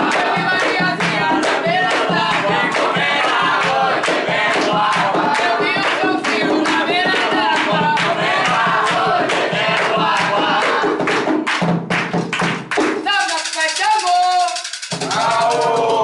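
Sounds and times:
group singing a chant: 0.0 - 11.4, 15.0 - 16.0
rhythmic hand clapping: 0.0 - 16.0.

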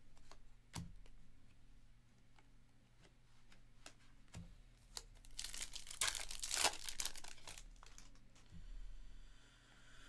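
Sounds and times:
foil wrapper tearing and crinkling: 5.0 - 8.2.

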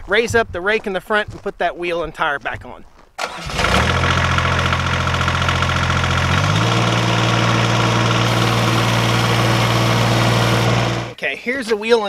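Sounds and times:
diesel tractor engine idling: 3.2 - 11.2.

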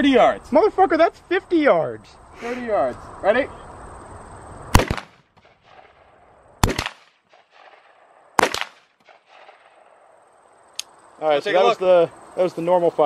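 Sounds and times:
rifle shots with echo: 4.7 - 10.0.

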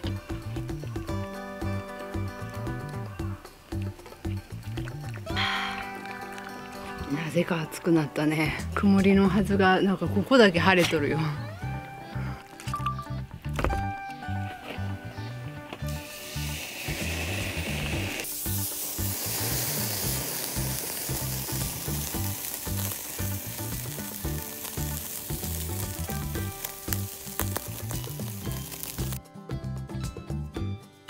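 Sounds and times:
background music with steady beat: 0.0 - 31.0
steak sizzling on a grill: 15.8 - 29.2.

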